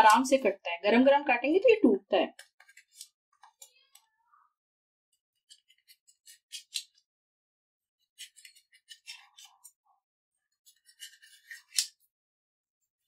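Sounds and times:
knife scraping steel plate: 10.6 - 12.0.

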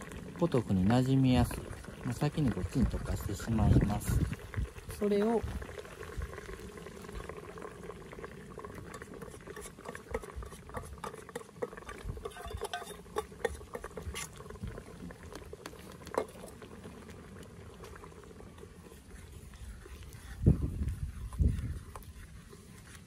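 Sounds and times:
soup simmering in a pot: 0.0 - 23.0
ladle clinking against a pot: 8.9 - 14.1.

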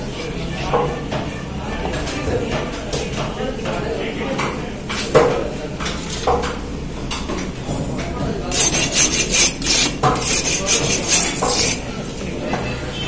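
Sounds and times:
knife scraping on sharpener: 8.5 - 11.9.

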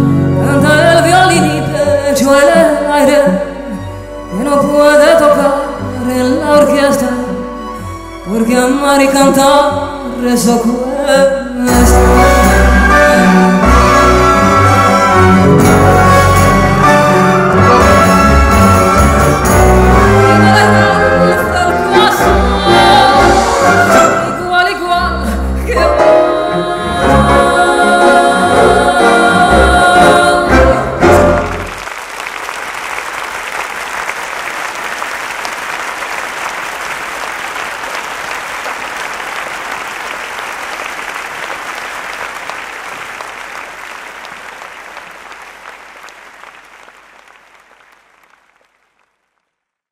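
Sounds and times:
woman singing with orchestra: 0.0 - 15.2, 16.8 - 31.7
audience applause: 31.0 - 49.4.

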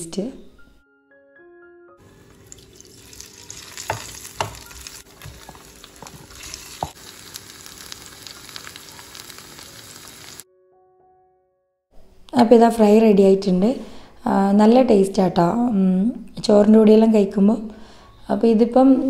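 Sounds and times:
vegetables sizzling in oil: 2.1 - 10.4.

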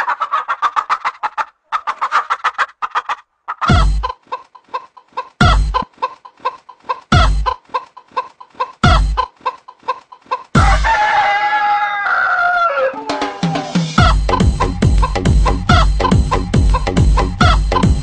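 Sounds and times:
rooster clucking: 0.0 - 18.0
rooster crowing: 10.6 - 14.0.

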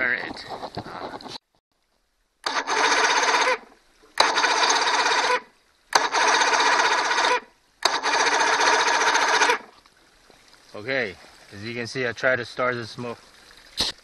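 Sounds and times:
outboard electric starter cranking: 2.4 - 9.8
starter click: 5.9 - 6.4.

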